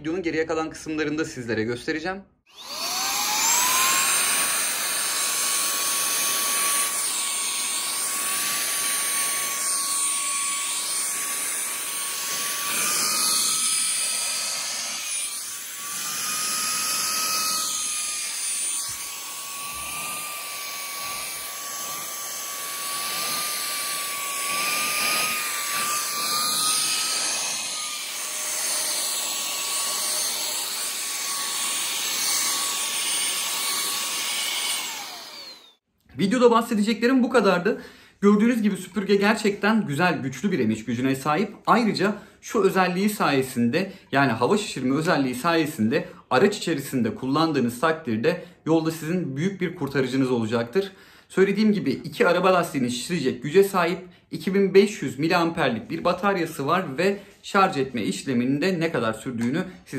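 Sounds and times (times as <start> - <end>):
handheld vacuum motor whine: 2.5 - 35.8.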